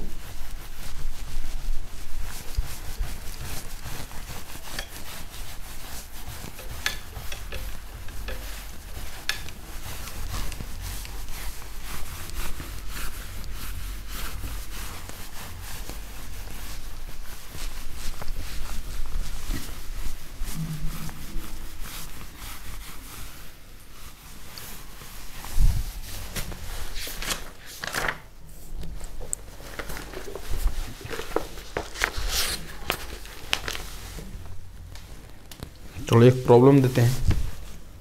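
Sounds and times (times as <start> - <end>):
eraser rubbing whiteboard: 0.0 - 27.2.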